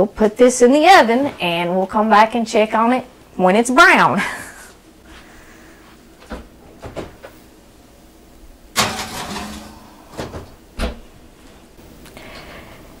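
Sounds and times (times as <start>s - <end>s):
skillet scraping on oven rack: 8.8s - 10.0s
oven door shutting: 8.8s - 11.0s.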